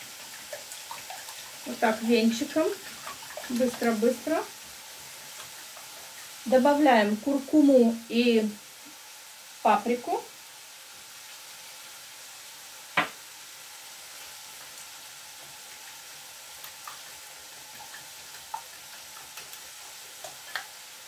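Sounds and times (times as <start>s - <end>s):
food sizzling in a pan: 0.0s - 21.0s
whisk beating eggs: 0.2s - 4.4s, 16.6s - 20.7s.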